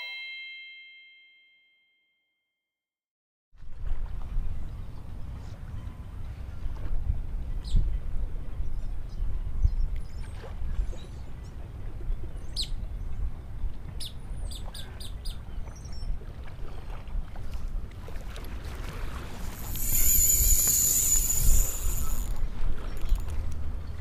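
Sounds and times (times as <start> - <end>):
wind rumbling on microphone: 6.6 - 11.0, 16.2 - 24.0
fishing reel drag whining: 19.4 - 23.4.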